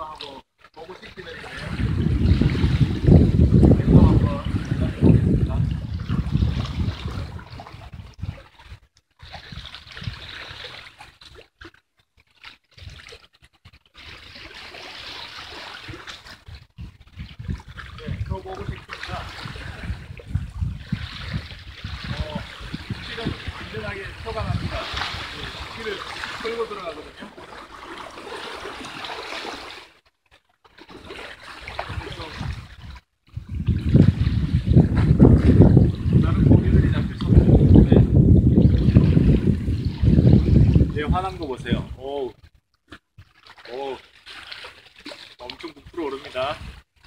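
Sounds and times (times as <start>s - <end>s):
seawater lapping against rocks: 0.0s - 47.0s
wind buffeting microphone: 1.2s - 10.6s, 15.9s - 27.0s, 31.7s - 42.6s, 45.8s - 47.0s.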